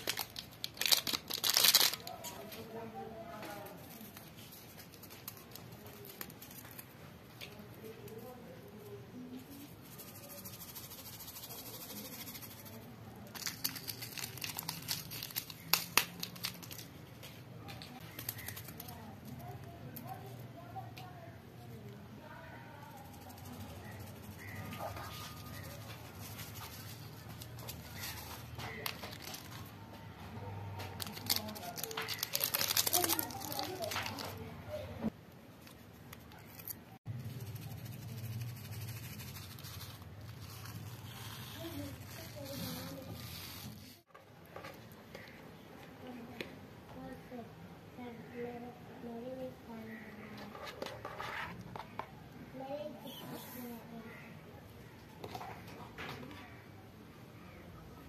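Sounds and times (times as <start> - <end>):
paper packet crinkling: 0.0 - 2.7, 10.0 - 17.2, 24.3 - 29.8, 30.8 - 34.5.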